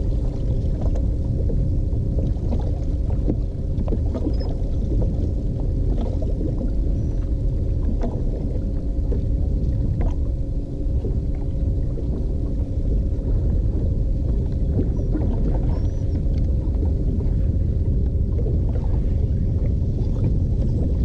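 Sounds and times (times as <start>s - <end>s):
faint motor hum: 0.0s - 21.0s
wind and water rumble: 0.0s - 21.0s.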